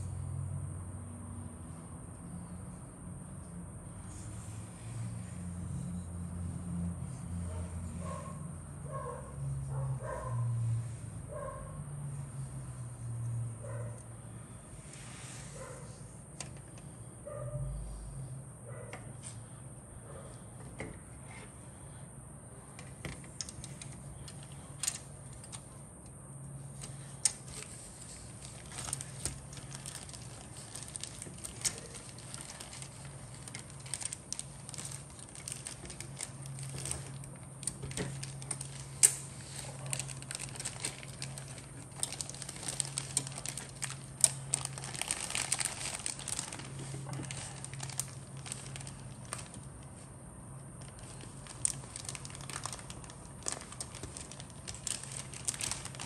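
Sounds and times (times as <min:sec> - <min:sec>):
faint steady hum: 0:00.0 - 0:56.0
plastic packaging crinkling: 0:26.7 - 0:50.0, 0:50.8 - 0:56.0.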